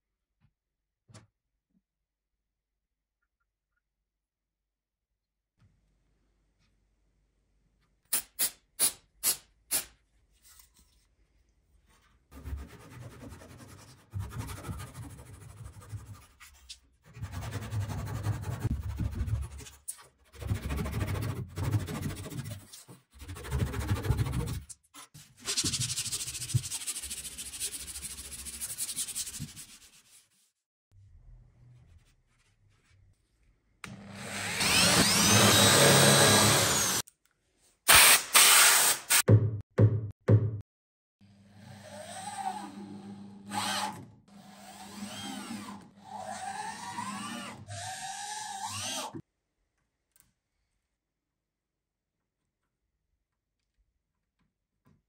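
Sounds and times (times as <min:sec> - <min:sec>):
power drill running: 0:33.9 - 0:37.0.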